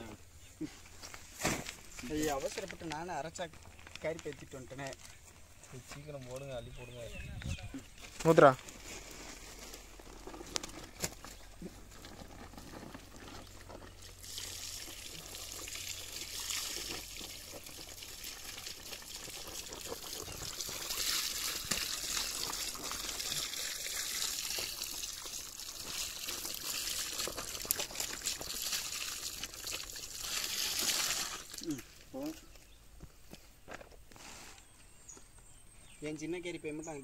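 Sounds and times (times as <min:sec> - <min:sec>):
water pouring and trickling: 0:11.9 - 0:32.2.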